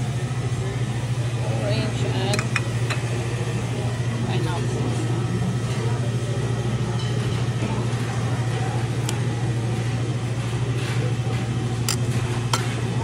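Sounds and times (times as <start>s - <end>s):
restaurant equipment hum: 0.0s - 13.0s.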